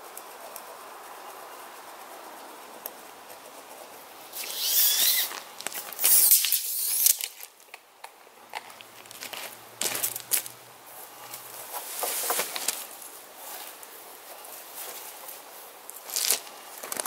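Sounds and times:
tape measure blade zipping: 4.3 - 7.5
footsteps on gravel: 5.3 - 6.4, 8.5 - 10.6, 16.0 - 17.0.

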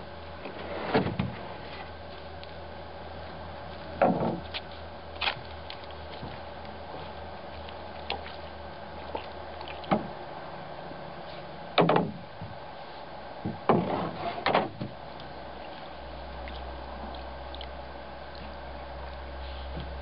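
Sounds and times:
knocks against wooden canoe hull: 11.8 - 12.6.

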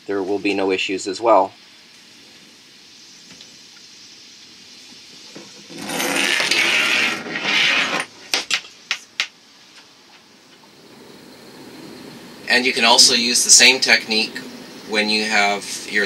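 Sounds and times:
rope rushing through pulley block: 5.7 - 8.2.

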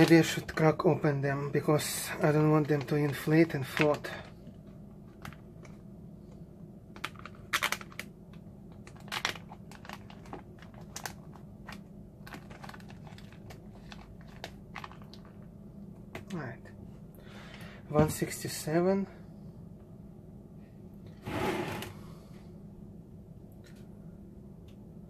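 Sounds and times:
plastic bags crinkling: 0.0 - 1.0, 1.6 - 5.8, 6.9 - 15.5.

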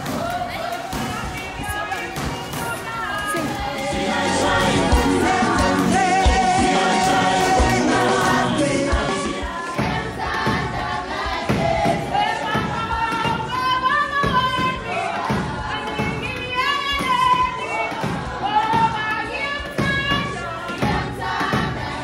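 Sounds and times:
choir singing: 1.2 - 22.0
low thumps: 3.4 - 13.5.

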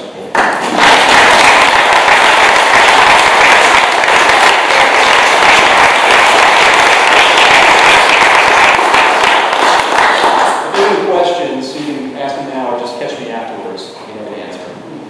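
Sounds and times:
audience applauding: 0.4 - 11.0.

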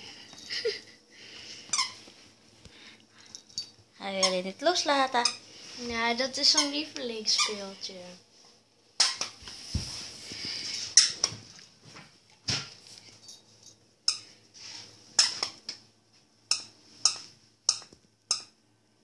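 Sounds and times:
dog toy squeaking: 4.2 - 4.4, 5.2 - 5.4, 6.4 - 7.7, 9.0 - 9.4.

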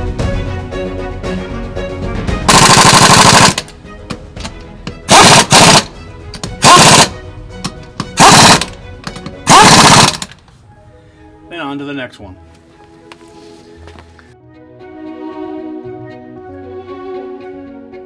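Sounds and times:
pneumatic impact wrench bursts: 2.5 - 3.7, 5.1 - 5.9, 6.6 - 7.2, 8.2 - 8.7, 9.5 - 10.4.

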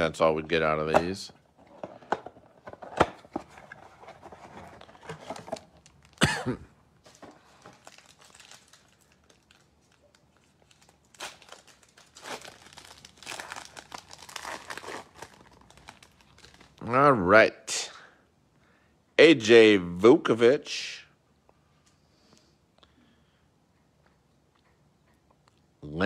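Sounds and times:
foil wrapper tearing and crinkling: 7.5 - 16.8.

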